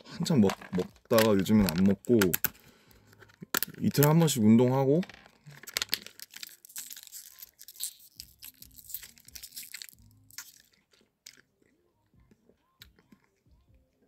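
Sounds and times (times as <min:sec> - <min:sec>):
plastic pouch crinkling: 0:05.4 - 0:11.5.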